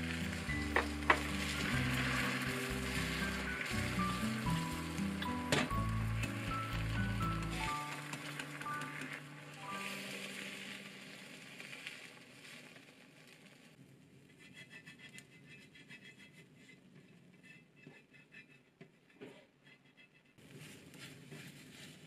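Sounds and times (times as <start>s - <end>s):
faint sizzling in pan: 0.0s - 13.8s.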